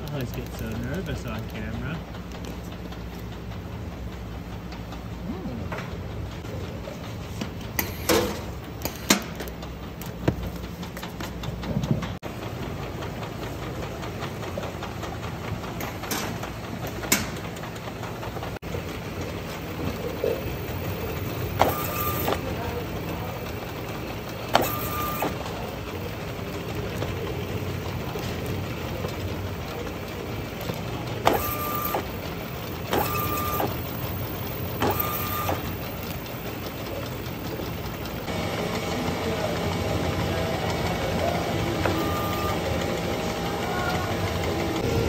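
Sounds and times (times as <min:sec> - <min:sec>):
conveyor machinery humming: 0:00.0 - 0:45.0
sharp machine clacks: 0:13.0 - 0:38.3, 0:39.6 - 0:43.4.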